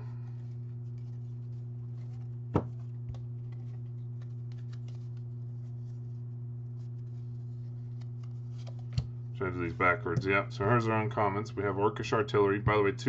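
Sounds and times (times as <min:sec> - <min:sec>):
low electrical hum: 0:00.0 - 0:13.0
trading cards shuffled: 0:00.2 - 0:10.4.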